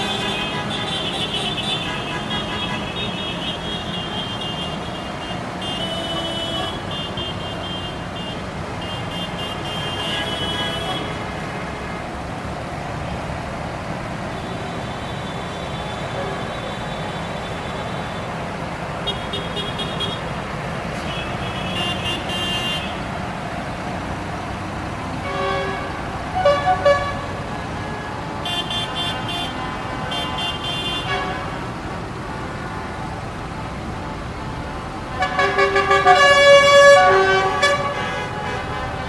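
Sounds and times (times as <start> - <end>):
vehicle horns honking: 0.0 - 12.0, 14.4 - 18.4, 19.0 - 20.3, 20.9 - 23.1, 25.1 - 31.6, 35.1 - 39.0
tractor engines running: 0.0 - 39.0.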